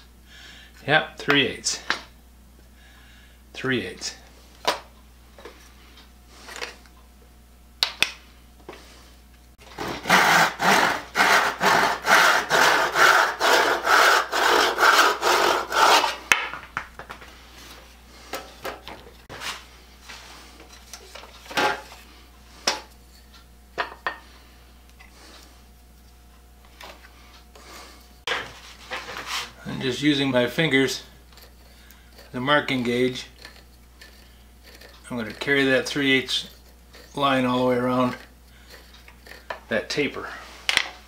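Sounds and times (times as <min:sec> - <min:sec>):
hand saw rasping wood: 0:09.7 - 0:16.2, 0:31.4 - 0:35.5.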